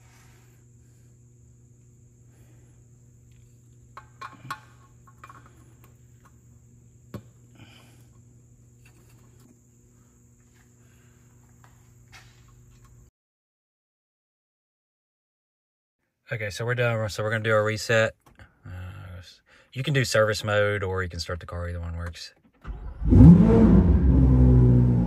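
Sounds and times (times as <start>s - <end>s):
hand tools clicking and knocking: 4.0s - 5.9s.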